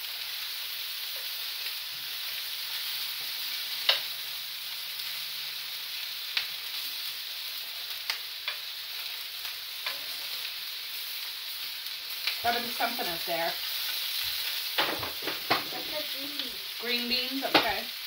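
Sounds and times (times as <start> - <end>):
sausages sizzling in a frying pan: 0.0 - 18.0
metal tongs clicking against pan: 3.8 - 4.1, 8.1 - 8.7, 9.8 - 10.1.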